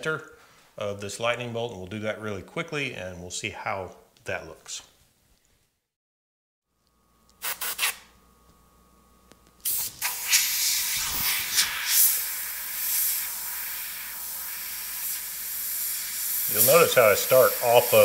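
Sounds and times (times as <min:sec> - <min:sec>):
airbrush short bursts: 0:07.4 - 0:08.1, 0:09.6 - 0:18.0
airbrush spraying hiss: 0:09.6 - 0:18.0.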